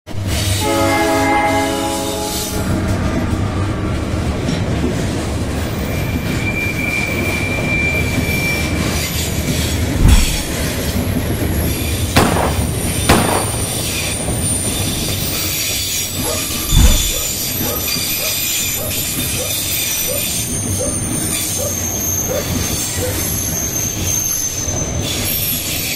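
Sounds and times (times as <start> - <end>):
train wheels rumbling on track: 0.1 - 25.9
wheel squeal: 5.7 - 12.0, 13.6 - 25.9
loud thumps: 10.0 - 10.8, 12.2 - 13.8, 16.5 - 17.4.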